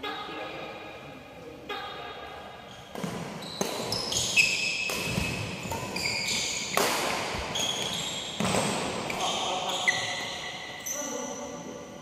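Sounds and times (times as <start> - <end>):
shoes squeaking on wooden floor: 2.7 - 11.2
racket hitting shuttlecock: 2.9 - 9.3.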